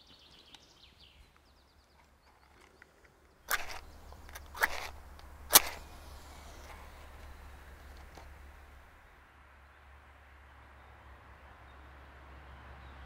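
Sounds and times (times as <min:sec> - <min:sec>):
match scraping on box: 0:03.5 - 0:08.9.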